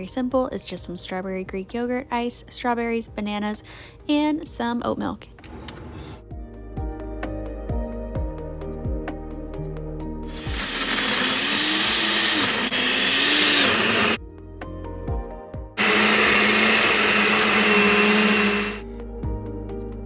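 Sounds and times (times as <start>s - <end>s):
blender blending ice: 10.3s - 14.2s, 15.8s - 18.8s.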